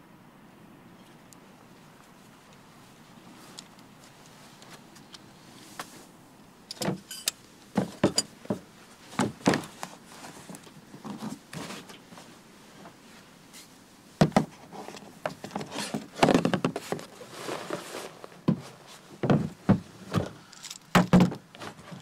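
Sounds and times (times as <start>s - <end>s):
hollow plastic knocks and clatter: 14.2s - 14.5s, 15.2s - 17.0s, 19.2s - 20.4s, 21.0s - 21.7s.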